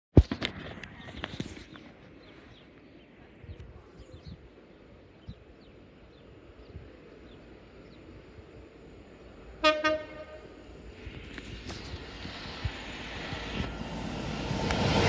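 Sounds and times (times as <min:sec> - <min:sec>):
locomotive horn blast: 0:09.6 - 0:10.7.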